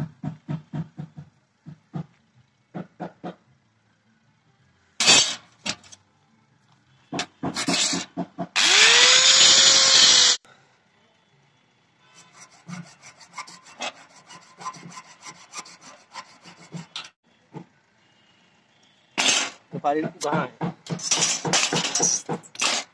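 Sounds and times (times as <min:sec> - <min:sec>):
angle grinder cutting steel: 0:08.6 - 0:10.4, 0:12.1 - 0:17.2
file rasping on wood: 0:12.2 - 0:17.2
scrapes and knocks: 0:12.2 - 0:17.2, 0:19.2 - 0:22.9.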